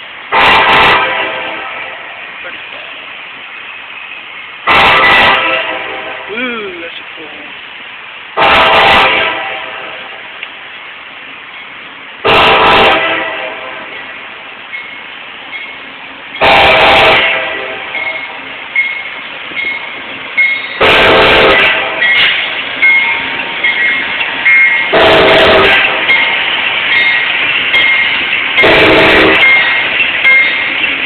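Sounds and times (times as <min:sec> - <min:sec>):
train running noise: 0:00.0 - 0:31.0
locomotive air horn blasts: 0:00.3 - 0:02.0, 0:04.7 - 0:06.3, 0:08.4 - 0:10.1, 0:12.2 - 0:13.9, 0:16.4 - 0:18.4, 0:20.8 - 0:22.4, 0:24.9 - 0:26.1, 0:28.6 - 0:29.6
train clicks and squeaks: 0:11.4 - 0:11.9, 0:13.8 - 0:16.6, 0:17.9 - 0:31.0.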